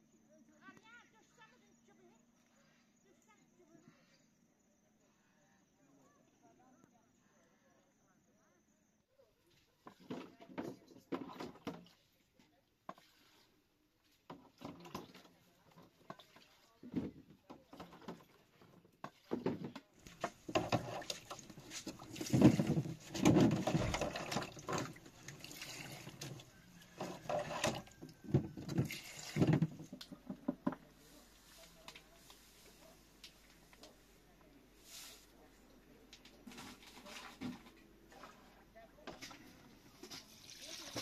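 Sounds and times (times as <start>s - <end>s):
water splashing in basin: 14.1s - 30.2s, 36.5s - 41.0s
plastic containers clattering: 16.9s - 30.9s
water pouring into jar: 20.0s - 30.0s.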